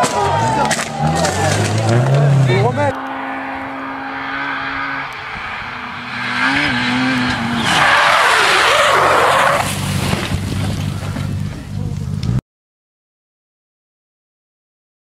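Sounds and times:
tyres skidding on dirt: 0.0 - 12.4
small car engine revving: 0.5 - 12.4.

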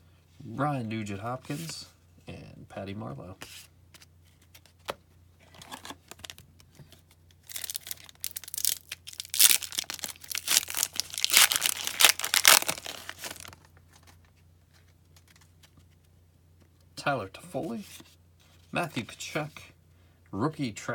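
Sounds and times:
foil wrapper tearing and crinkling: 7.4 - 13.6.

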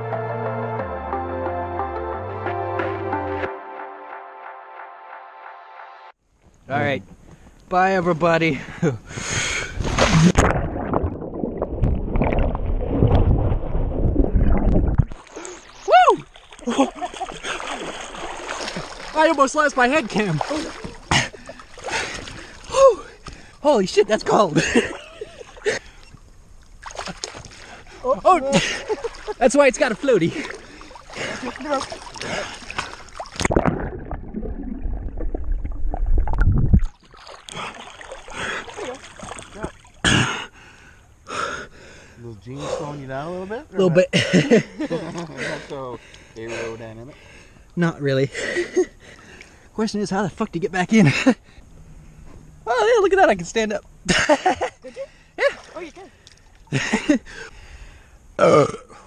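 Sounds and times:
muffled underwater river churning: 9.3 - 23.6, 24.5 - 42.2
splash into water: 9.8 - 19.4, 20.0 - 22.7, 26.8 - 27.8, 30.3 - 40.0
underwater bubbling and gurgling: 10.3 - 15.8, 32.0 - 39.3.

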